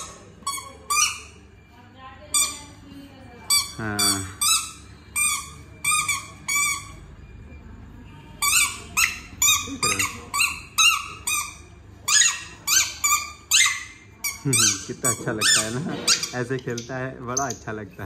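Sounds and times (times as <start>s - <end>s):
rubber ball squeaking: 0.0s - 1.5s, 2.3s - 2.8s, 3.5s - 7.1s, 8.4s - 17.8s
dog chewing toy: 8.4s - 17.6s.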